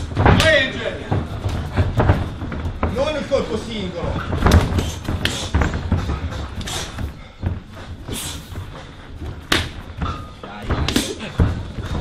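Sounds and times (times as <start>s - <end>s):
gloved punches and kicks landing: 4.3s - 8.7s, 9.4s - 10.0s, 10.7s - 12.0s.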